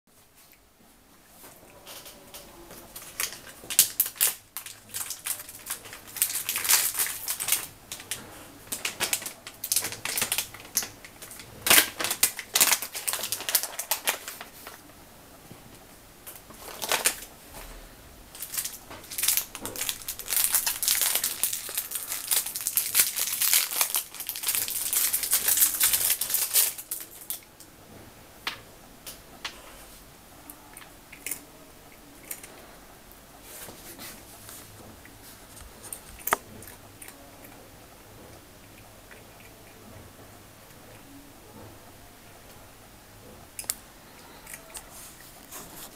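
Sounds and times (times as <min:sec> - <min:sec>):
plastic bag crinkling: 0:01.8 - 0:14.9, 0:16.3 - 0:17.4, 0:18.3 - 0:27.5.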